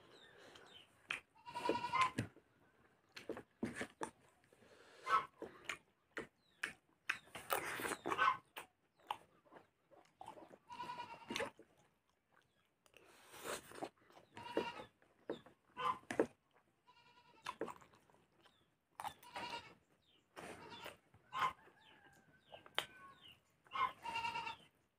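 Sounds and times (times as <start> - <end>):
chewing: 0.1 - 16.7, 17.4 - 19.5.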